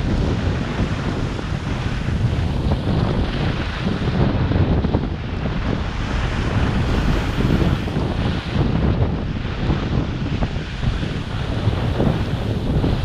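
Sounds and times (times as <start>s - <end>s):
wind buffeting a microphone: 0.0s - 13.0s
skis scraping over snow: 5.6s - 9.0s.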